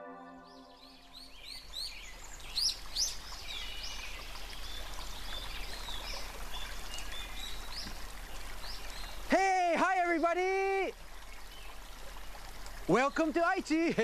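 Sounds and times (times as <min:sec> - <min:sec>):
birds chirping: 0:00.0 - 0:09.3.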